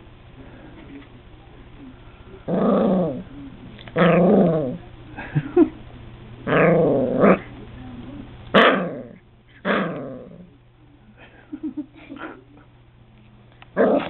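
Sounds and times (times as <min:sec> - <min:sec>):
puppy growling: 0:02.4 - 0:04.9, 0:06.4 - 0:07.6, 0:08.6 - 0:10.5, 0:13.7 - 0:14.0.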